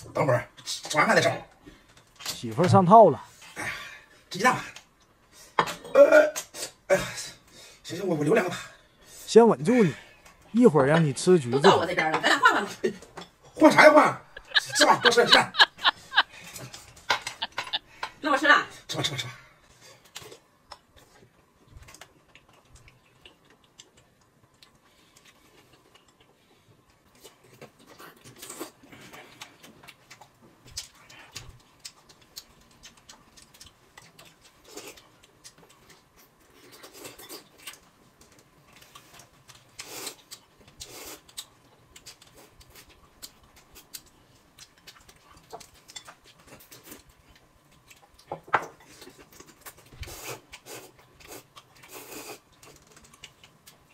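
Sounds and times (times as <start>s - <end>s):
chewing and slurping noodles: 20.0s - 53.9s.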